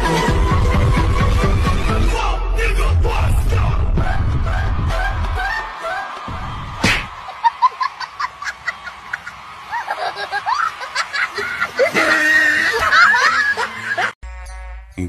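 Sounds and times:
music with heavy beat: 2.7 - 7.2.

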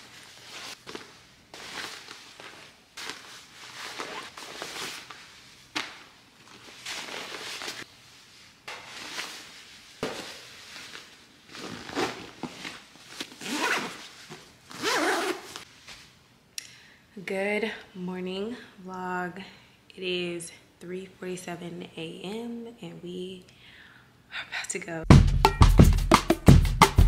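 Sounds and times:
nylon bag rustling: 0.0 - 15.9
zippers being pulled: 3.1 - 5.1, 11.6 - 14.1, 14.7 - 15.6.

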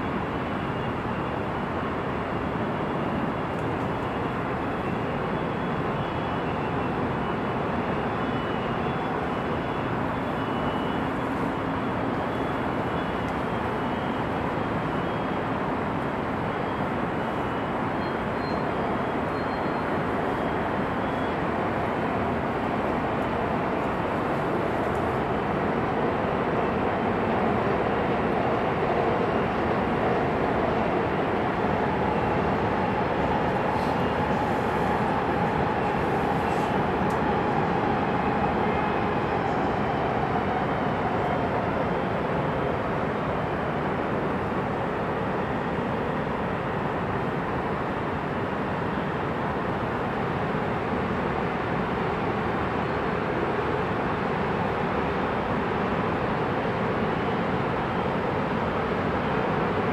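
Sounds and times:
heavy freeway traffic: 0.0 - 59.9.

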